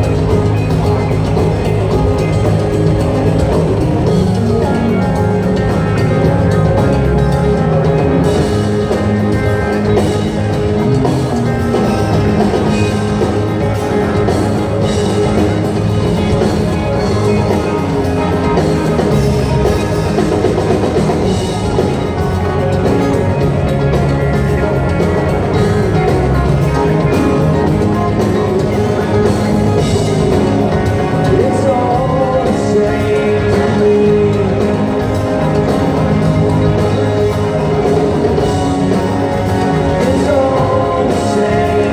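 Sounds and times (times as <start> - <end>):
drum kit: 0.0 - 41.9
electric guitars: 0.0 - 41.9.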